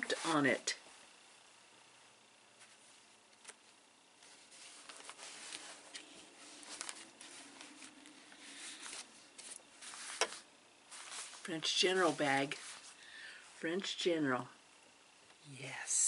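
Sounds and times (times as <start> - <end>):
cloth bags rustling: 4.2 - 13.0.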